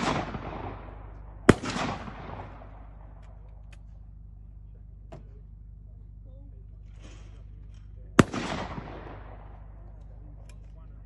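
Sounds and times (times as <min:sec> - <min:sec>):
shotgun shot echoing: 0:00.0 - 0:03.9, 0:08.2 - 0:09.9.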